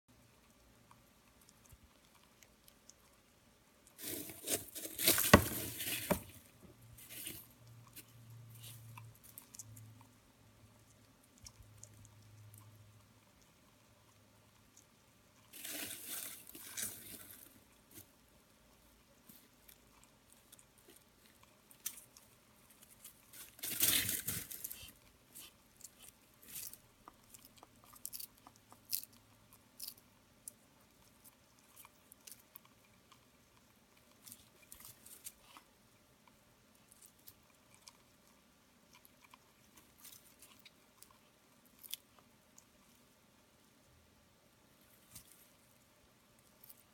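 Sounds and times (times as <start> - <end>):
lizard crunching and chewing: 0.2 - 43.9, 44.6 - 46.9.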